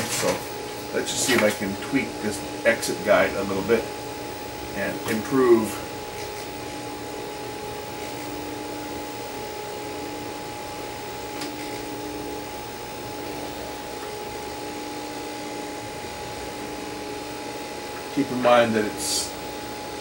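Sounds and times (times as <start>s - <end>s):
tape recorder whirring: 0.0s - 20.0s.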